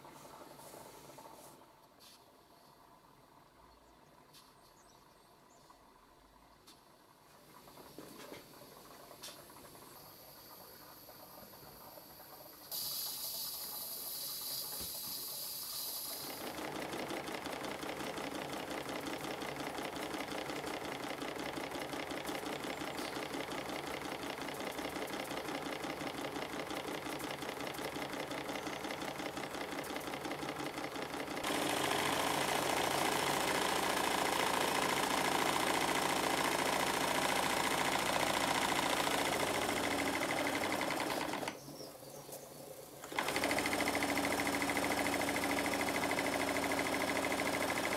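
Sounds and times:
steam hissing: 0:09.4 - 0:16.5.

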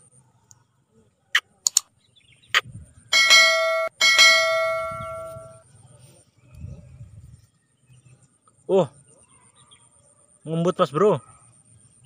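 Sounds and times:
mouse clicks: 0:01.6 - 0:01.9
notification bell chime: 0:03.2 - 0:05.6.

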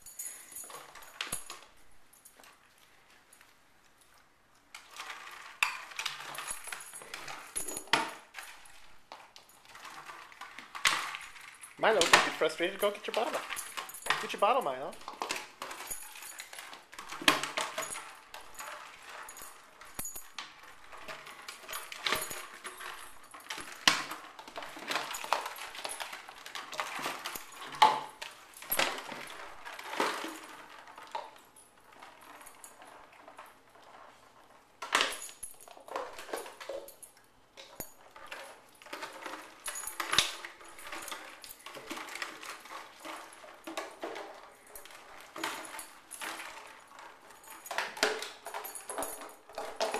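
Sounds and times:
plastic bottles crackling and clattering: 0:04.7 - 0:49.9.

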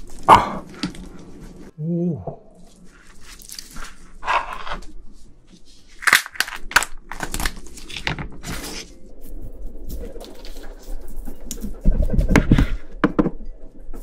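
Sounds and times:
prawn shell cracking: 0:05.9 - 0:08.8.

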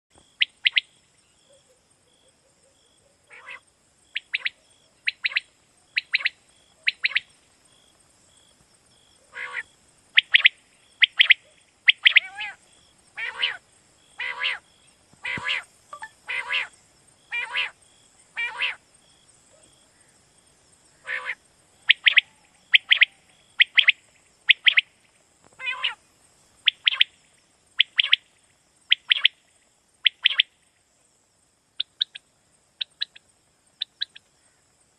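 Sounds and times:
quail calling: 0:03.3 - 0:03.6, 0:09.3 - 0:12.6, 0:13.2 - 0:13.6, 0:14.2 - 0:16.7, 0:17.3 - 0:17.8, 0:18.4 - 0:18.8, 0:21.0 - 0:24.8, 0:25.6 - 0:26.0, 0:26.6 - 0:27.1, 0:27.8 - 0:28.2, 0:28.9 - 0:29.3, 0:30.1 - 0:30.5.

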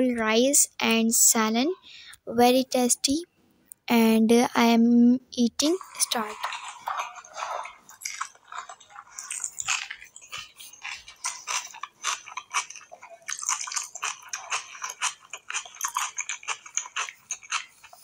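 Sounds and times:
fingers squishing rice on plate: 0:05.8 - 0:18.0.

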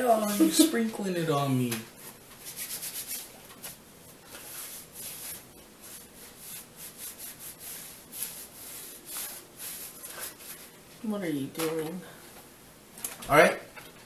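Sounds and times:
hands rubbing with wet towelette: 0:02.0 - 0:10.8.

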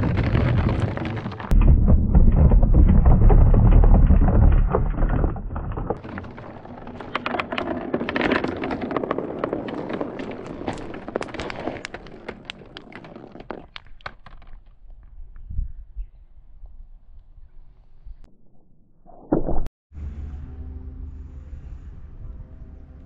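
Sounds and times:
marbles rolling and clattering: 0:00.0 - 0:14.6.

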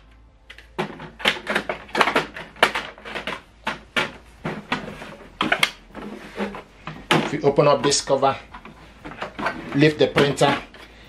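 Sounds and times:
loud plastic clack: 0:00.5 - 0:07.4.

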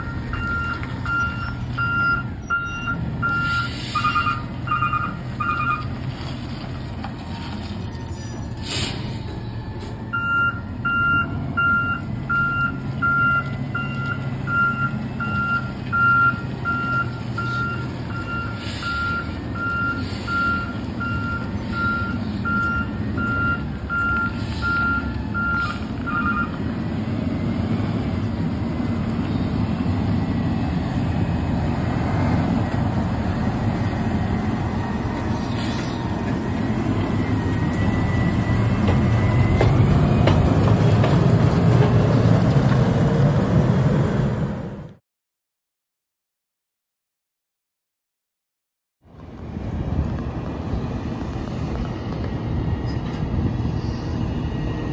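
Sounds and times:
reversing alarm beeping: 0:00.0 - 0:05.9, 0:07.8 - 0:26.6
truck engine rumble: 0:00.0 - 0:45.0, 0:49.0 - 0:54.9
short hisses: 0:03.4 - 0:04.1, 0:08.6 - 0:09.2, 0:20.0 - 0:20.4, 0:35.3 - 0:36.1.

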